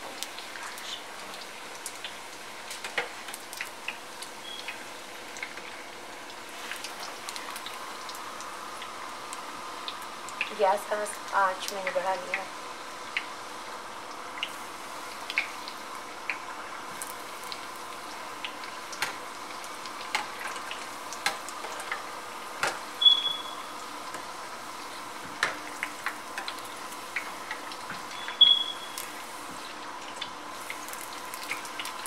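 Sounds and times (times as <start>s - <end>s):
oil bubbling and popping: 0.0s - 32.0s.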